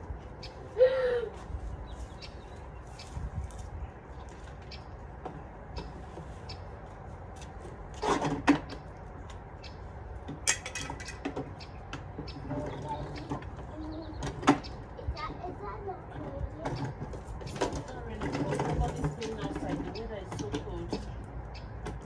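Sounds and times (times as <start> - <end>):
wind rumble on microphone: 0.0 - 6.6, 7.8 - 22.0
plastic toys knocking and clicking: 16.1 - 21.1.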